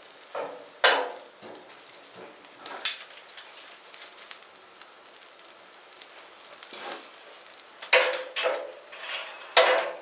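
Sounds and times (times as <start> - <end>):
fire crackling: 0.0 - 10.0
tongs scraping stove: 6.6 - 7.1, 7.8 - 10.0
metal tongs clanking: 8.0 - 10.0.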